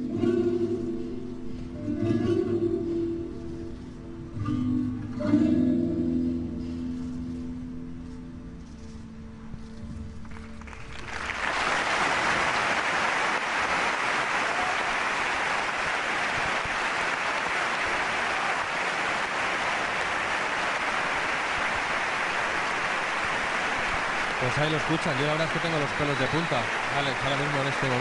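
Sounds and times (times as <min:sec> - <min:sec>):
large crowd applauding: 0:10.2 - 0:28.0.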